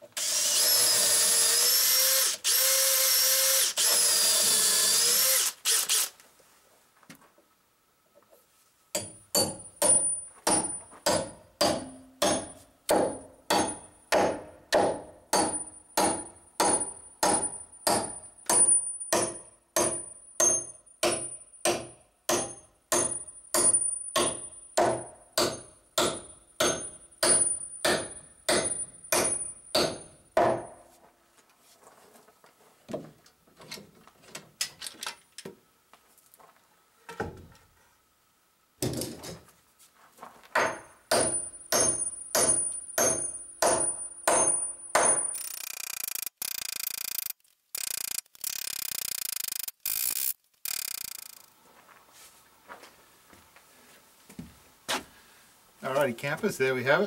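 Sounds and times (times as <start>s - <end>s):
hammer striking steel tool: 9.0s - 30.7s, 40.6s - 45.4s.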